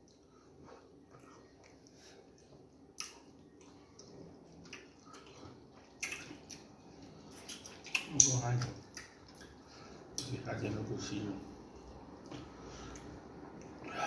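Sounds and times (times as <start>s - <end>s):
wet eating smacks and squishes: 0.9s - 10.4s.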